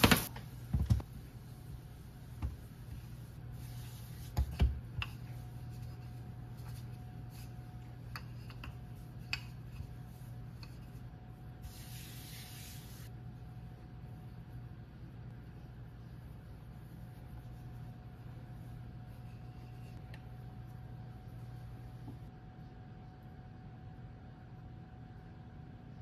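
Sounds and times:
hand brushing across dough: 1.3 - 8.1, 9.8 - 13.1.

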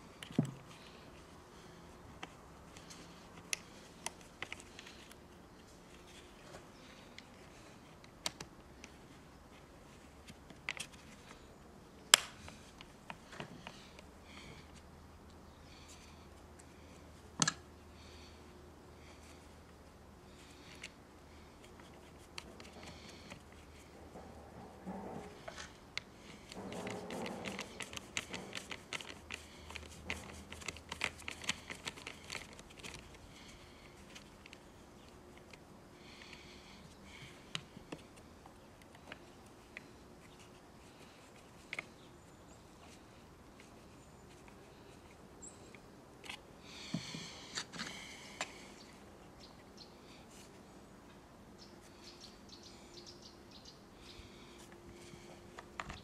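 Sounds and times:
scratchy rustles: 20.4 - 35.6.

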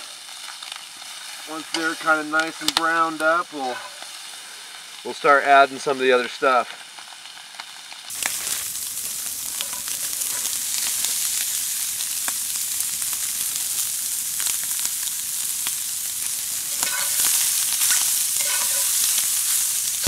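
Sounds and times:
sausages sizzling in a skillet: 0.0 - 20.0.

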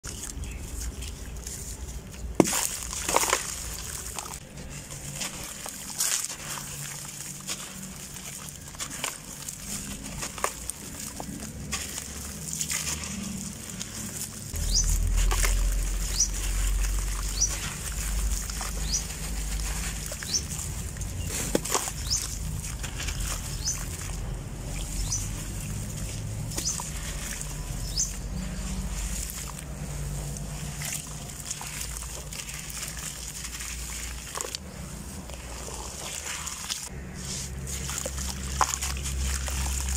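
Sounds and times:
water splashing and sloshing: 0.0 - 39.9
wet sand crunching: 0.0 - 39.9.

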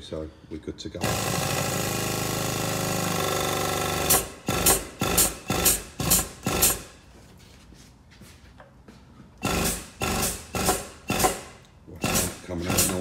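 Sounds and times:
hydraulic pump buzzing: 1.0 - 6.9, 9.4 - 13.0.

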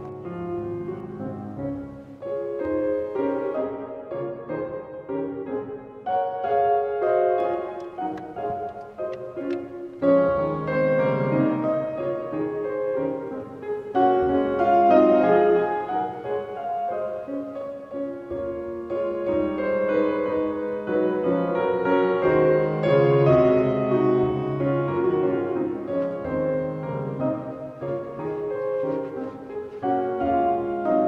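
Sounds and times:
solo classical piano: 0.0 - 31.0.

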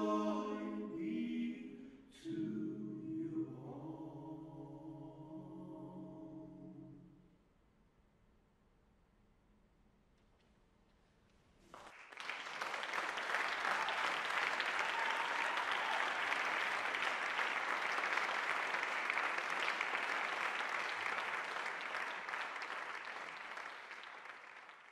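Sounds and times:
audience applause: 11.7 - 24.9.

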